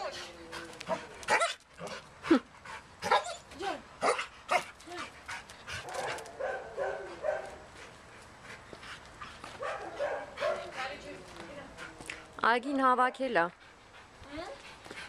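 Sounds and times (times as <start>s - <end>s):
dog yelping and barking: 0.9s - 1.9s, 3.0s - 4.7s.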